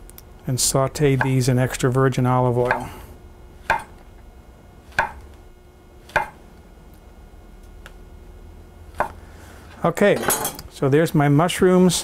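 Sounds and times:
knife tapping cutting board: 0:01.2 - 0:01.4, 0:02.6 - 0:02.9, 0:03.7 - 0:03.9, 0:04.9 - 0:05.2, 0:06.1 - 0:06.4.

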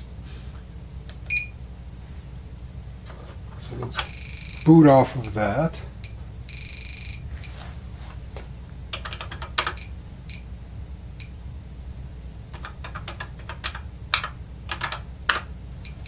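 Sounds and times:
steady low hum: 0:00.0 - 0:16.0
keyboard keys clacking: 0:08.9 - 0:09.9, 0:12.5 - 0:16.0.

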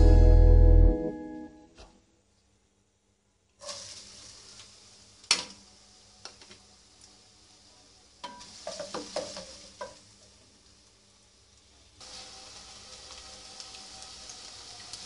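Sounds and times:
onions sizzling in hot oil: 0:03.6 - 0:15.0.

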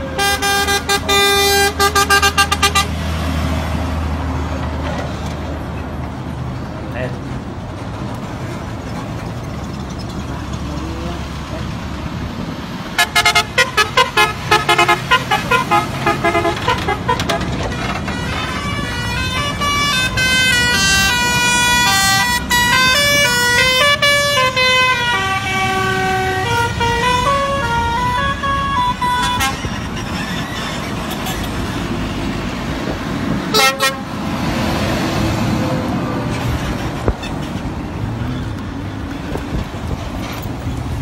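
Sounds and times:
musical air horn tooting: 0:00.0 - 0:03.0, 0:13.0 - 0:29.8, 0:33.5 - 0:34.1
truck engine rumbling: 0:00.0 - 0:41.0.

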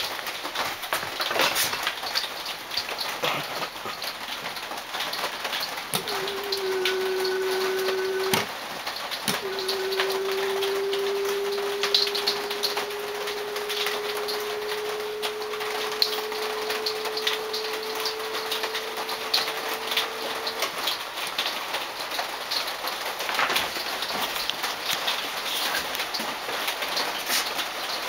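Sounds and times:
electric lift motor whining: 0:05.9 - 0:08.6, 0:09.2 - 0:21.0.

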